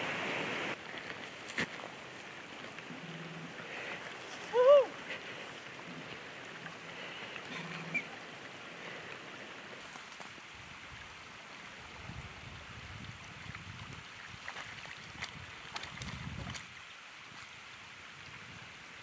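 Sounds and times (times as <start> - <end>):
person wading through water: 0.7 - 10.5, 13.4 - 17.7.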